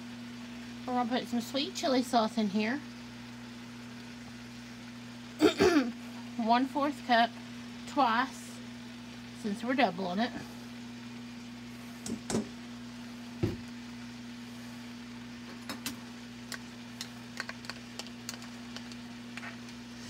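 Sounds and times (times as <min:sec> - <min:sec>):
steady low hum: 0:00.0 - 0:20.0
sauce pouring: 0:15.7 - 0:19.9.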